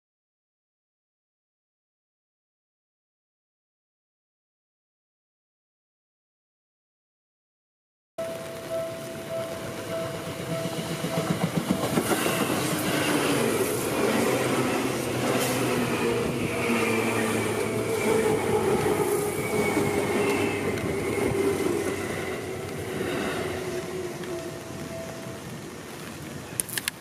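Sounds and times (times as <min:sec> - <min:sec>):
train wheels rumbling over rails: 0:08.2 - 0:27.0
high squeal and whine: 0:08.3 - 0:26.5
clacks at rail joints: 0:09.0 - 0:16.0.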